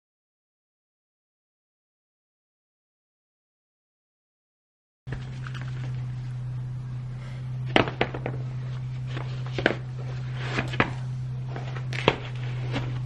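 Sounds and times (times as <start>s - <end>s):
steady low hum: 5.1s - 13.0s
shoes dropped on concrete floor: 7.7s - 8.5s, 9.1s - 13.0s
shoe knocks and scuffs: 9.2s - 13.0s.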